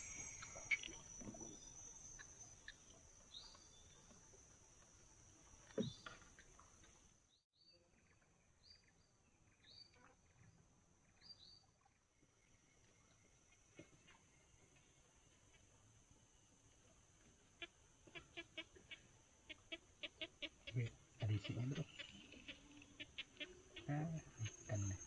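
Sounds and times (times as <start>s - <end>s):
bird chirps: 0.0s - 4.1s, 19.5s - 25.0s
high insect drone: 0.0s - 7.1s, 20.7s - 25.0s.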